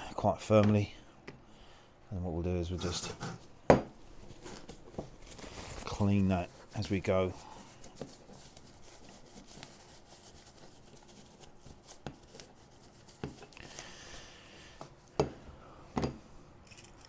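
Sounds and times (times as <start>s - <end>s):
paper tissue rustling and rubbing: 4.1s - 14.2s.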